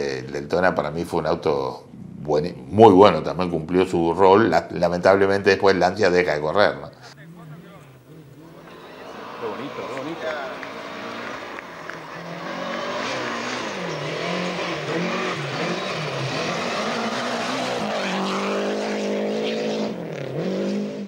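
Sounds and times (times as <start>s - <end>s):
rally car engine revving: 7.2s - 21.0s.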